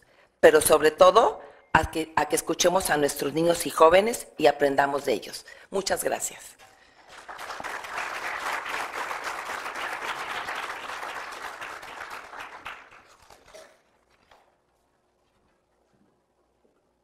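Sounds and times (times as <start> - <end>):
audience applauding: 7.1 - 13.6.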